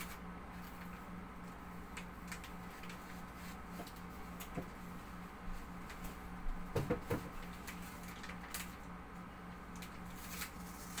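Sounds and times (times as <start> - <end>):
plastic film rustling and crackling: 0.0 - 4.9, 7.0 - 8.9, 9.7 - 11.0
steady low hum: 0.0 - 11.0.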